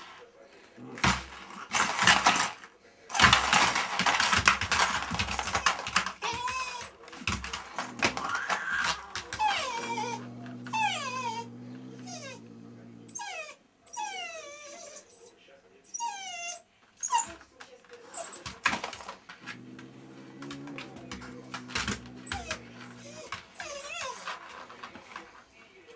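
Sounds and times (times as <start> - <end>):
puppy whimpering: 6.1 - 7.0, 8.0 - 18.7, 21.9 - 24.4.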